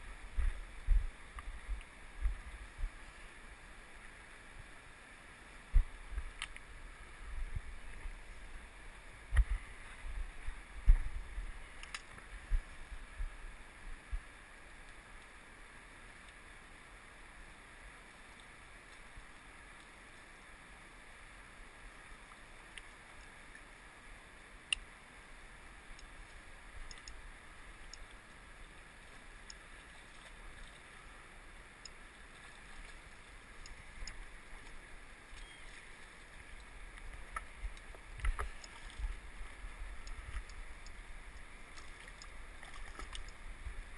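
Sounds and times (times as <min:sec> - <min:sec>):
faint clicks: 0:06.2 - 0:06.7, 0:11.7 - 0:12.3, 0:22.2 - 0:23.7, 0:25.9 - 0:27.2, 0:27.8 - 0:28.4, 0:31.8 - 0:32.0, 0:33.6 - 0:39.2, 0:40.0 - 0:43.4.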